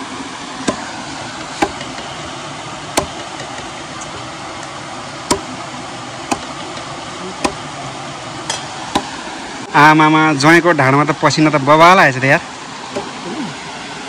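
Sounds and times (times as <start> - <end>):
knife chopping on wooden block: 1.5 - 2.0, 3.0 - 3.7, 5.3 - 5.5, 6.3 - 7.6, 8.5 - 9.1.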